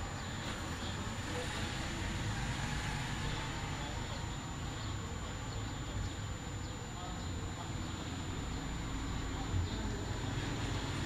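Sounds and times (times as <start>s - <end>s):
high-pitched whine: 0.0s - 11.0s.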